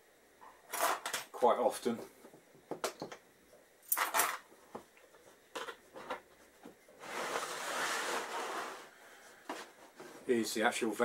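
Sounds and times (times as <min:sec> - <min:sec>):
rustling scrape: 0:07.0 - 0:10.4.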